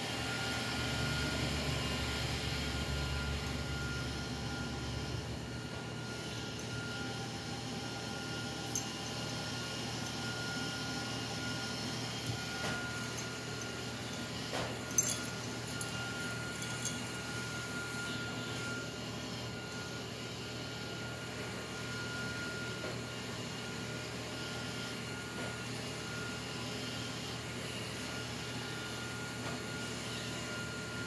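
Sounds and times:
steady background hum: 12.0s - 17.4s.

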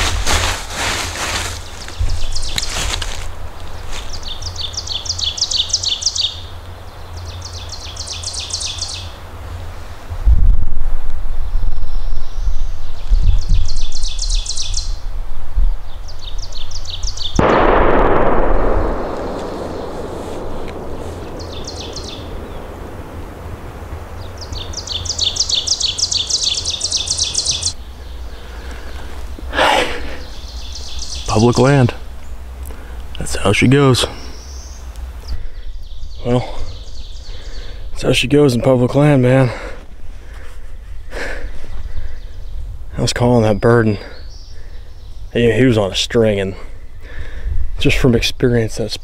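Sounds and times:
songbirds singing: 1.4s - 10.0s, 11.3s - 49.0s
shotgun blast echoing: 17.4s - 23.8s
sudden loud low rumble: 17.4s - 24.7s
steady low rumble: 17.4s - 25.9s
songbird singing high notes: 18.8s - 22.9s, 24.2s - 27.8s.

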